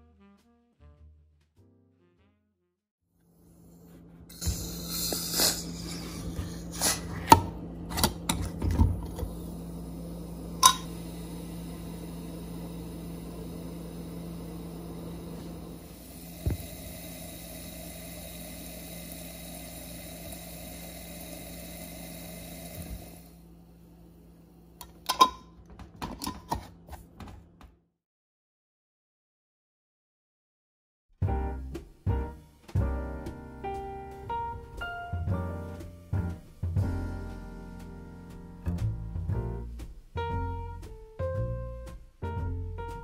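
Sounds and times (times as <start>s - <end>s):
gas hissing from jar: 4.3s - 7.4s, 9.0s - 23.4s
faint fizzing bubbles: 10.5s - 23.4s
metal lid clicking on glass: 10.6s - 10.9s, 24.8s - 25.4s.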